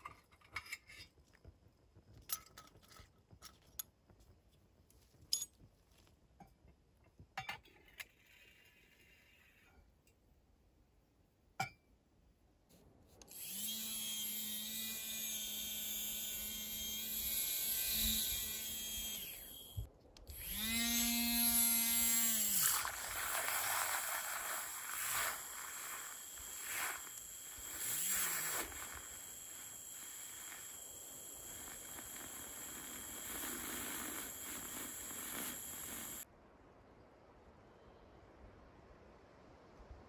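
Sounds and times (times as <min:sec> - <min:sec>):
milk frother motor whining: 0:13.3 - 0:36.2.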